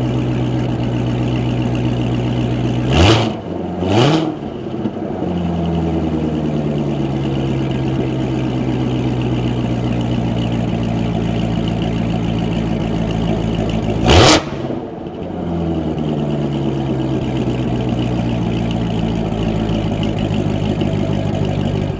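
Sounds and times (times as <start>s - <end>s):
car engine idling: 0.0s - 21.9s.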